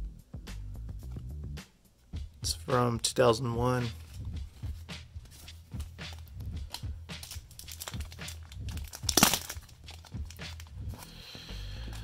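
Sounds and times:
plastic packaging crinkling: 0:05.3 - 0:11.2
packaging tearing rip: 0:06.7 - 0:10.8.

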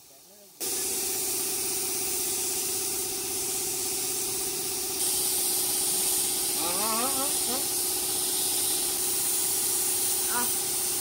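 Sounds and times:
paint spray gun hissing: 0:00.0 - 0:11.0.

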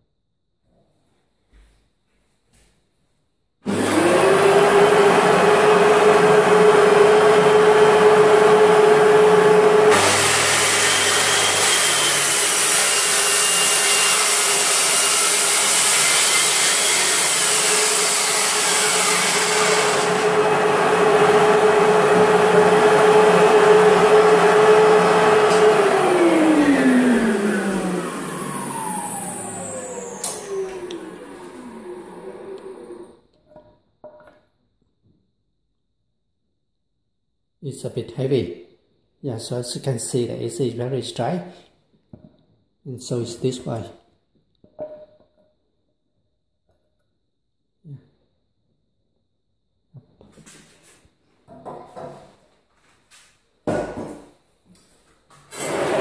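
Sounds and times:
circular saw cutting board: 0:03.7 - 0:34.2, 0:55.3 - 0:56.0.

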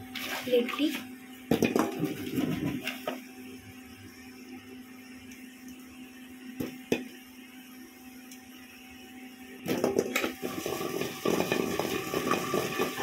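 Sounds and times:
dough balls rattling in metal pan: 0:09.7 - 0:13.0.

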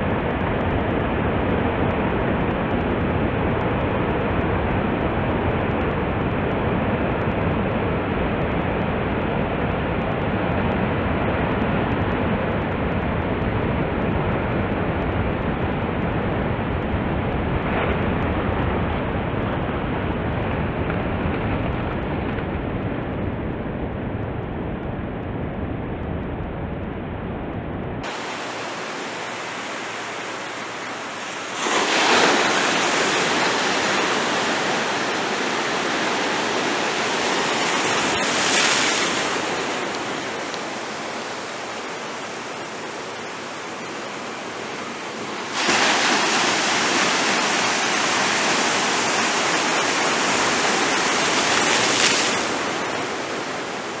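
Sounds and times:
ocean surf breaking on rocks: 0:28.0 - 0:54.0.

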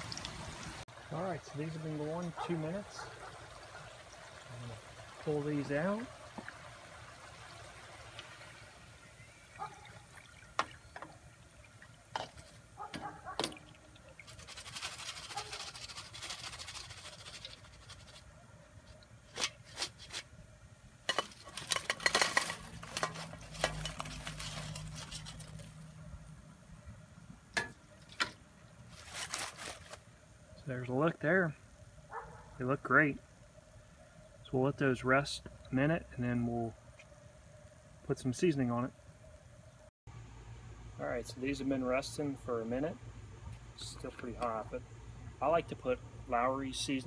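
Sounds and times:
oil sizzling and dripping: 0:00.0 - 0:20.1, 0:21.0 - 0:26.4.

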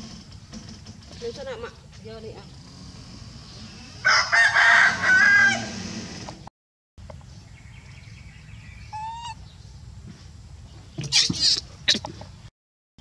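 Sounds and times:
rooster crowing: 0:04.0 - 0:05.9.

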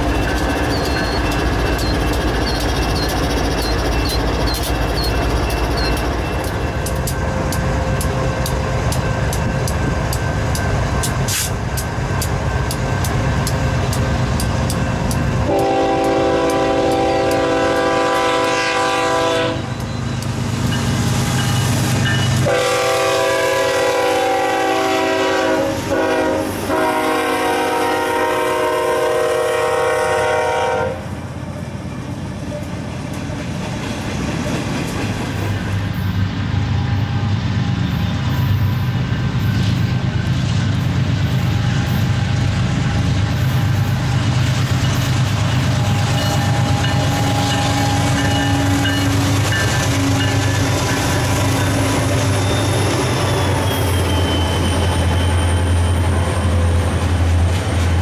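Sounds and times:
freight train rumbling past: 0:00.0 - 0:58.0
locomotive air horn blasts: 0:15.5 - 0:19.8, 0:22.4 - 0:31.1.

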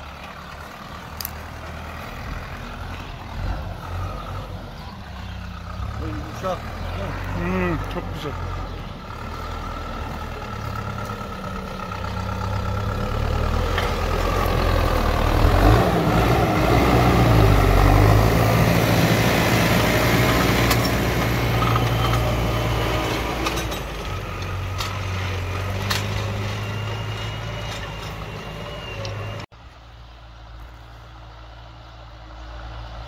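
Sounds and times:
tractor diesel engine: 0:00.0 - 0:33.0
tines scraping through earth: 0:20.3 - 0:28.6.

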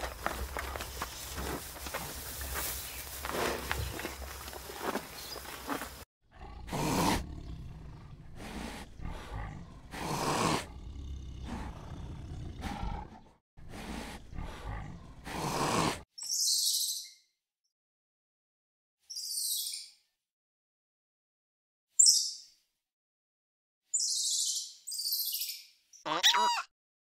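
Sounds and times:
tiger roaring and growling: 0:06.3 - 0:16.0.

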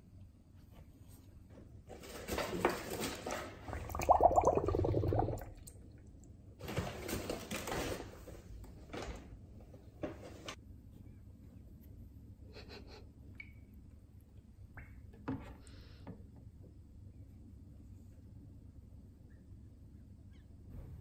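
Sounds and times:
water sloshing: 0:03.0 - 0:05.7
water splashes: 0:03.2 - 0:05.8
air bubbles gurgling: 0:03.6 - 0:05.8.

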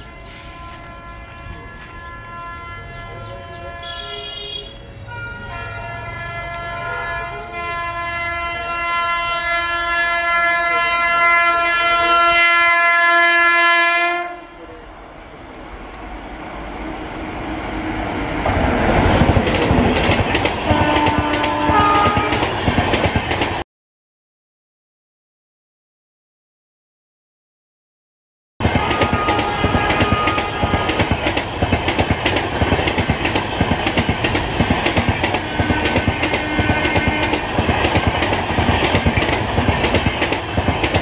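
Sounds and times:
train horn blast: 0:00.0 - 0:14.8, 0:20.6 - 0:22.6, 0:28.6 - 0:31.4, 0:35.2 - 0:37.7
train wheels clattering: 0:18.5 - 0:23.6, 0:28.6 - 0:41.0.

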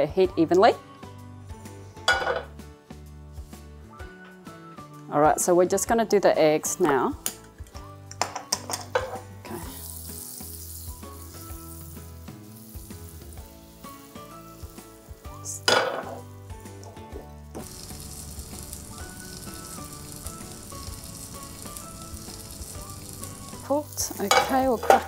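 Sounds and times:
butter sizzling in a frying pan: 0:09.4 - 0:25.0.

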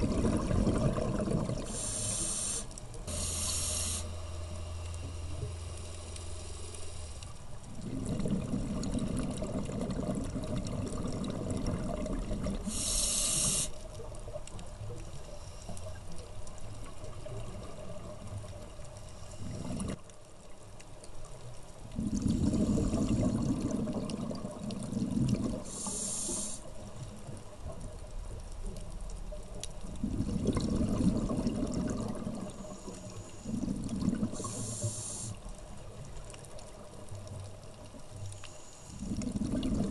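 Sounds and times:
exhaled bubbles rumbling: 0:00.0 - 0:02.0, 0:07.6 - 0:12.8, 0:16.8 - 0:20.0, 0:21.8 - 0:26.1, 0:27.0 - 0:32.8, 0:33.4 - 0:34.7, 0:39.0 - 0:39.9
regulator inhale hiss: 0:01.6 - 0:07.4, 0:12.6 - 0:13.9, 0:15.2 - 0:16.0, 0:19.0 - 0:20.0, 0:22.2 - 0:23.4, 0:25.6 - 0:26.8, 0:32.4 - 0:35.5, 0:38.3 - 0:39.3.

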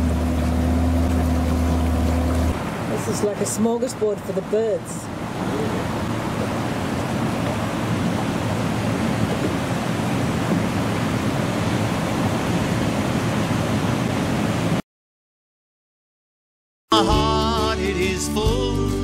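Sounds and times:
river water rushing through weir: 0:00.0 - 0:14.8.

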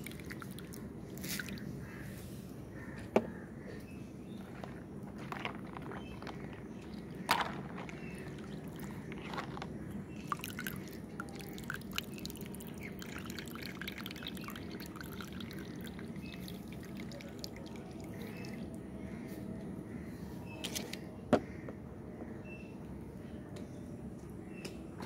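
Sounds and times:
water dripping and splashing: 0:00.0 - 0:01.6, 0:06.0 - 0:09.3, 0:10.1 - 0:18.8.

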